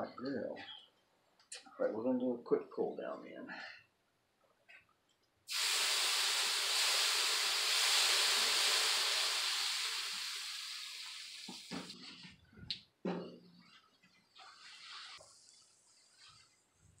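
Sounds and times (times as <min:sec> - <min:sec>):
water hissing on hot griddle: 0:05.5 - 0:12.0.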